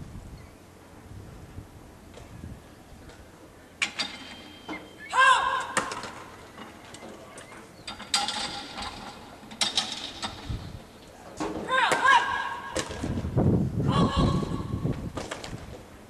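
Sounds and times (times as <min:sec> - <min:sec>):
person shouting commands: 0:05.1 - 0:05.8, 0:11.6 - 0:12.8, 0:13.8 - 0:14.8.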